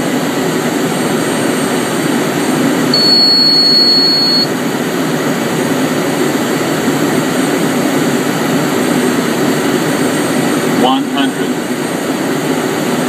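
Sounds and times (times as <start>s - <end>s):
jet engine and airflow noise: 0.0s - 13.0s
high steady beep: 3.0s - 4.5s.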